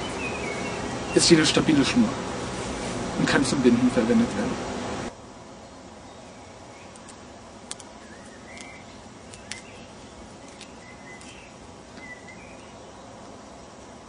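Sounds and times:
bird chirps: 0:00.0 - 0:01.4, 0:08.0 - 0:13.2
small sharp clicks: 0:06.9 - 0:07.9, 0:08.5 - 0:09.8.

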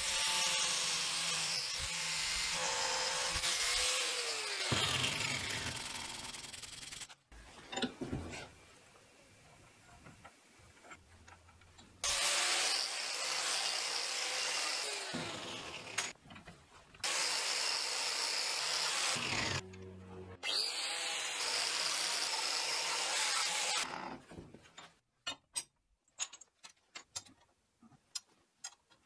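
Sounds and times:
angle grinder grinding metal: 0:00.0 - 0:07.1, 0:12.0 - 0:16.2, 0:17.0 - 0:24.2.

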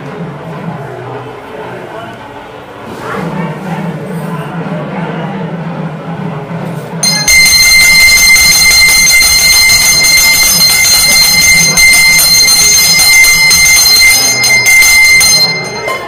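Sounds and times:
hand bell ringing rapidly: 0:07.0 - 0:16.0.

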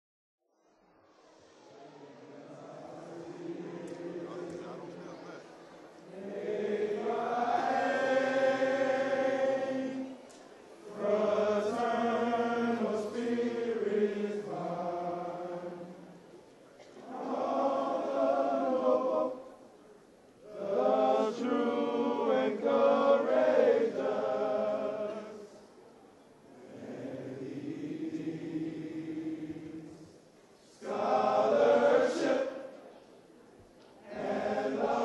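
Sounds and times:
men singing together: 0:10.9 - 0:15.8, 0:30.8 - 0:32.6, 0:34.1 - 0:35.0.

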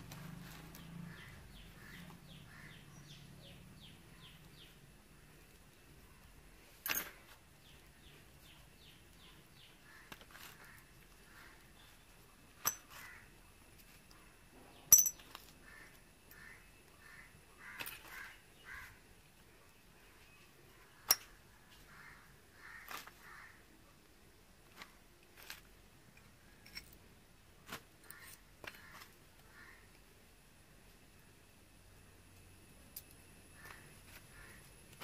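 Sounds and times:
metal parts clinking: 0:12.6 - 0:12.9, 0:14.9 - 0:15.4.

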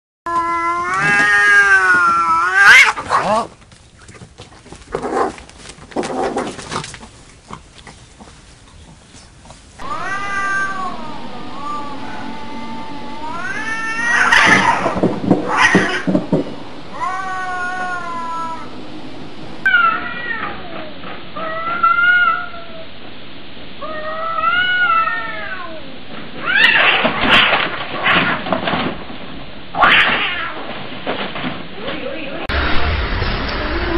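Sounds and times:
cats caterwauling: 0:00.3 - 0:03.5, 0:09.8 - 0:19.0, 0:19.6 - 0:22.9, 0:23.8 - 0:27.2, 0:29.8 - 0:30.6.

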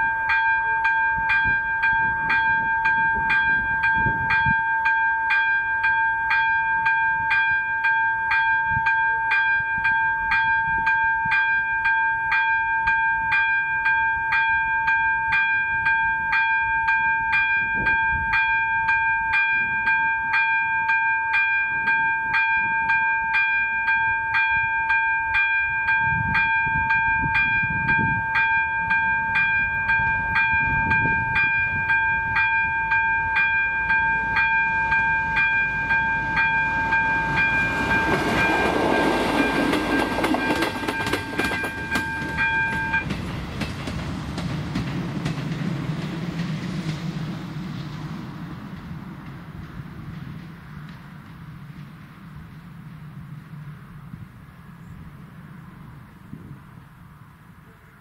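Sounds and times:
level crossing bell ringing: 0:00.0 - 0:43.1
train wheels clattering: 0:25.9 - 0:53.4.

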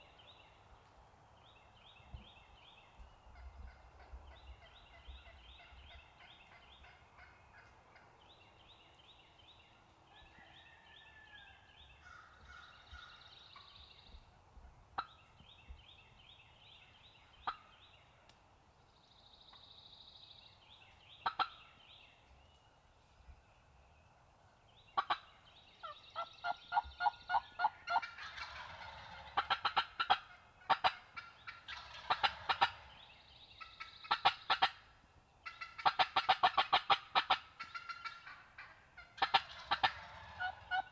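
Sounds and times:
songbirds singing: 0:00.0 - 0:40.9
turkeys gobbling: 0:21.2 - 0:21.6, 0:25.0 - 0:32.9, 0:33.6 - 0:40.9.

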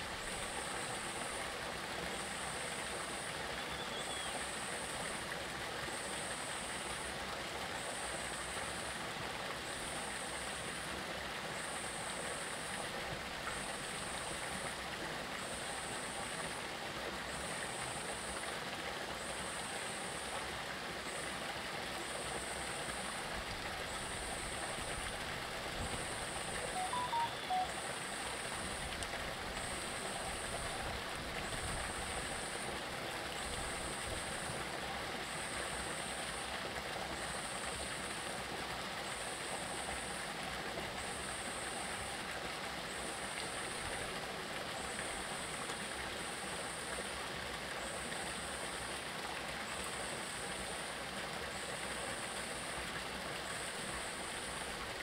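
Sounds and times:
stream flowing over rocks: 0:00.0 - 0:55.0
faint high pulsing sound: 0:26.6 - 0:27.8
brief notes: 0:26.8 - 0:27.7.

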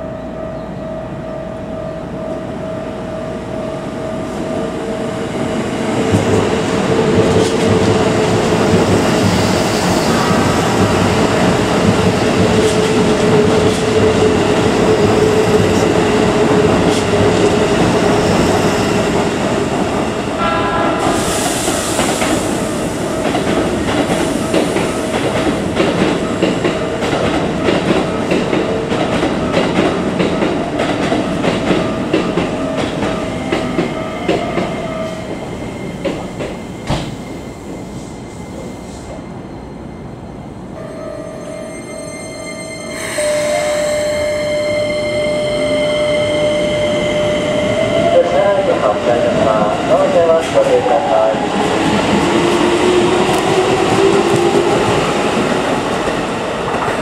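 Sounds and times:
electric train hum: 0:00.0 - 0:57.0
train wheels clattering over rails: 0:23.2 - 0:37.8.

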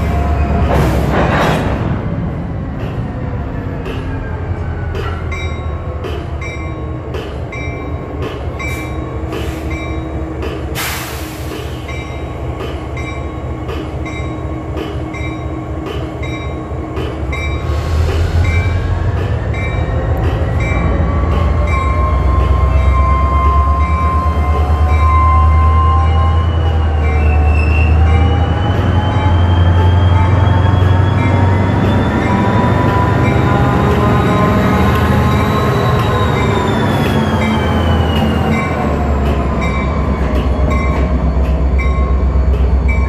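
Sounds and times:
freight train rumbling past: 0:00.0 - 0:43.0
train wheels squealing: 0:17.3 - 0:43.0.

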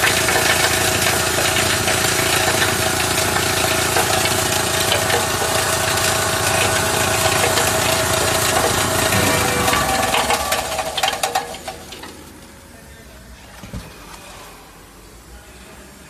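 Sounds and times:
plastic granulator chopping: 0:00.0 - 0:12.3.

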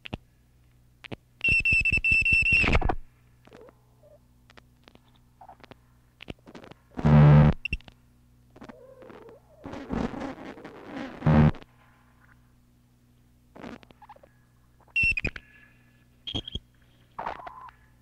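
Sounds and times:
low steady hum: 0:00.0 - 0:18.0
loud buzzing burst: 0:09.9 - 0:11.6.

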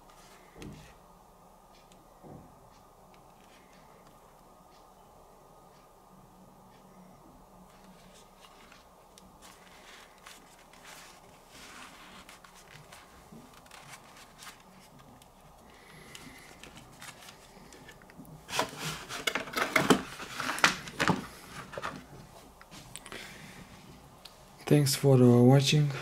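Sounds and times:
packaging rustling and clicking: 0:09.4 - 0:22.2.

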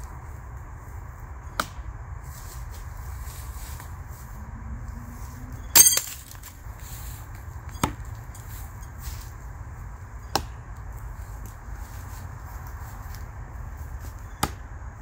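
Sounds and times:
knives striking tree trunk: 0:05.8 - 0:06.6, 0:07.7 - 0:08.5, 0:14.3 - 0:14.6.

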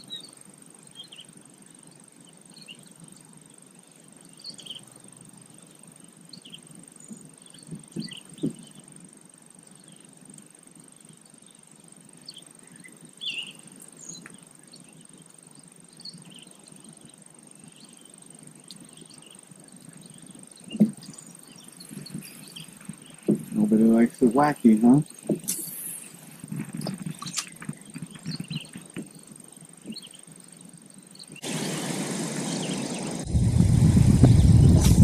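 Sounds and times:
high insect drone: 0:00.0 - 0:35.0
low thumps: 0:20.7 - 0:21.1, 0:21.9 - 0:23.8, 0:33.2 - 0:35.0.

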